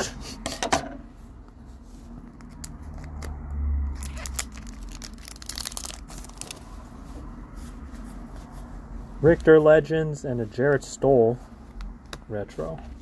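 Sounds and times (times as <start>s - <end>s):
wrappers crinkling and tearing: 2.2s - 6.9s.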